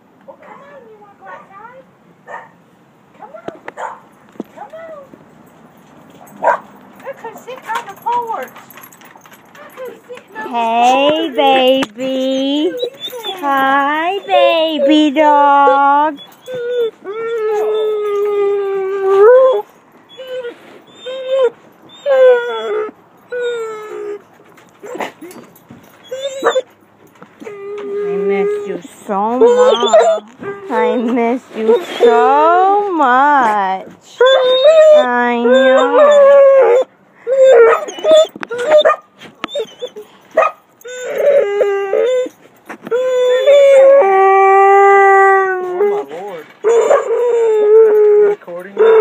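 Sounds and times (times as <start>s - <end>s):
dog whining: 9.6s - 49.0s
dog howling: 12.5s - 20.4s, 26.0s - 26.6s, 27.4s - 31.1s, 34.2s - 40.0s, 40.8s - 49.0s.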